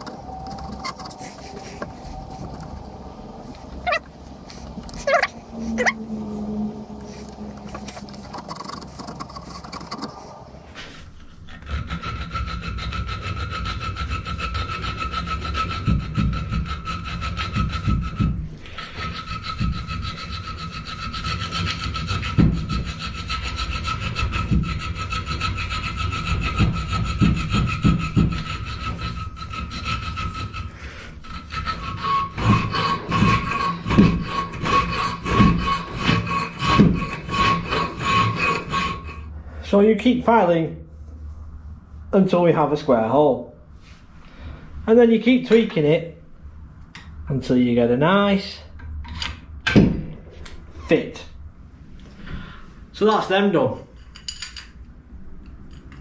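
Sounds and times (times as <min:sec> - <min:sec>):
file rasping on steel: 0:00.1 - 0:02.4, 0:03.7 - 0:39.4.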